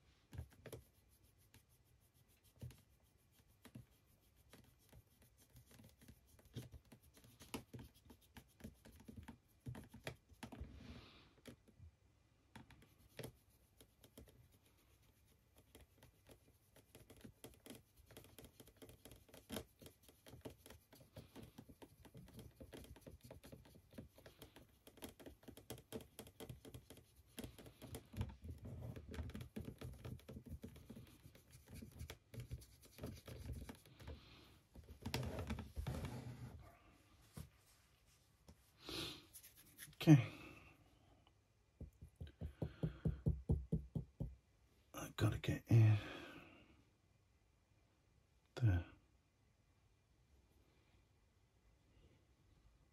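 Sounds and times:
paintbrush scratching: 0.3s - 10.8s, 12.8s - 40.0s.

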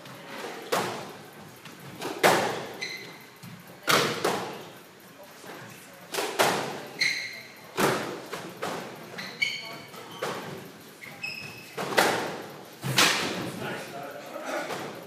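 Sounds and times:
shoes squeaking on wooden floor: 2.2s - 3.6s, 6.8s - 7.5s, 8.6s - 12.0s.

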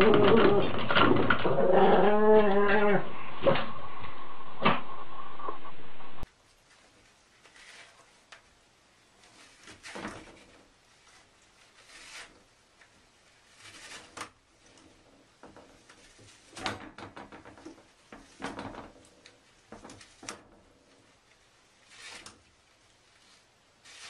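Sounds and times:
paper rustling: 6.4s - 14.8s, 21.3s - 24.0s.

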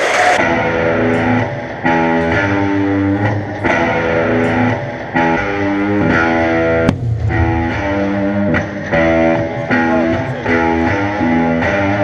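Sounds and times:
electric guitar chords: 0.4s - 12.0s
sharp hit: 6.9s - 9.0s.

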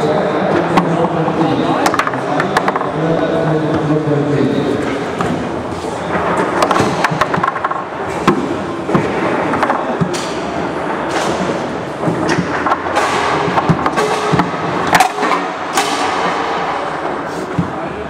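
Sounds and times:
foosball ball knocking: 6.2s - 16.6s.

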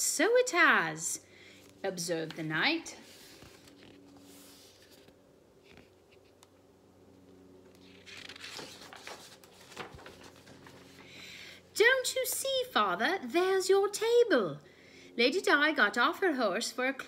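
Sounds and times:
low steady hum: 0.0s - 17.0s
paper pages rustling: 1.6s - 6.5s, 7.7s - 11.2s.

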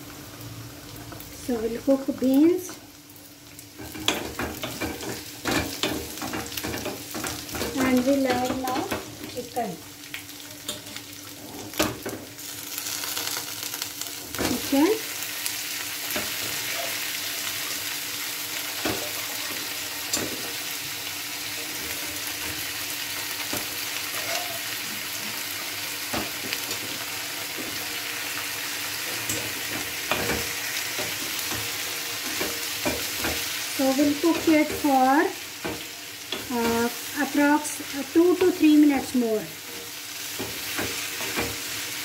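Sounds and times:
food sizzling in oil: 0.0s - 42.0s
utensils knocking against pan: 3.8s - 9.1s, 29.1s - 33.5s, 40.3s - 41.7s.

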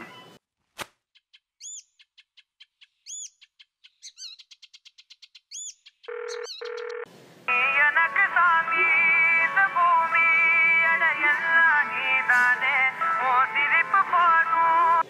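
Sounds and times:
small birds chirping: 1.0s - 7.0s.

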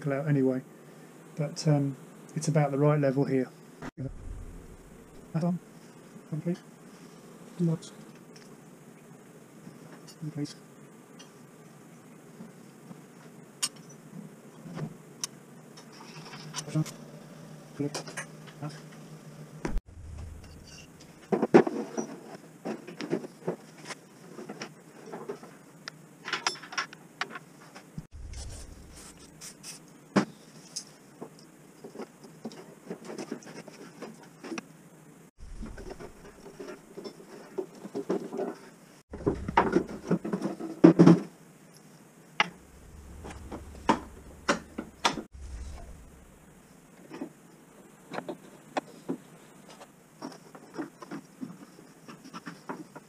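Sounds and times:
hand tools and metal parts rattling: 20.2s - 23.3s, 35.4s - 40.8s.

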